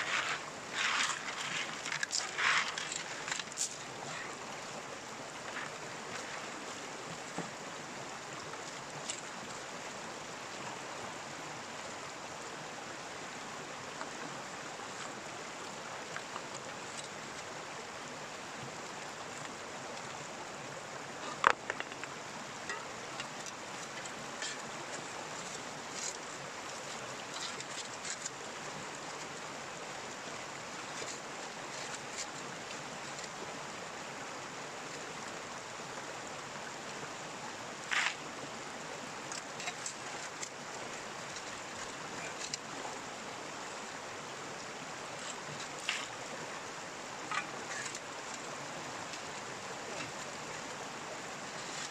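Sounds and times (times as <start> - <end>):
stream water running: 0.0 - 51.9.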